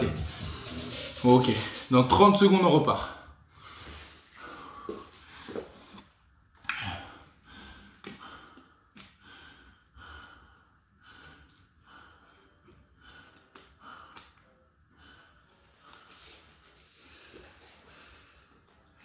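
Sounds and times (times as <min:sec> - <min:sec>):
person breathing heavily: 0:03.2 - 0:19.0.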